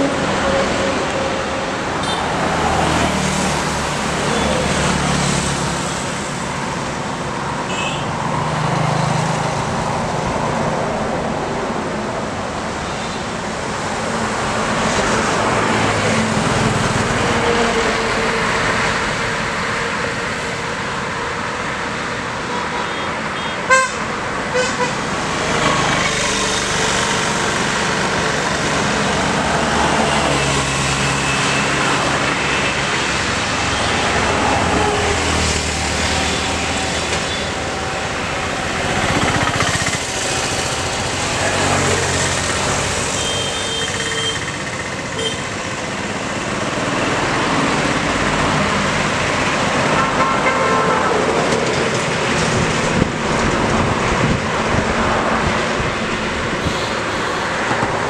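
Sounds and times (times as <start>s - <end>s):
highway traffic passing: 0.0s - 58.0s
vehicle horn toot: 7.7s - 8.1s, 22.8s - 25.0s, 43.2s - 44.6s, 45.2s - 45.5s.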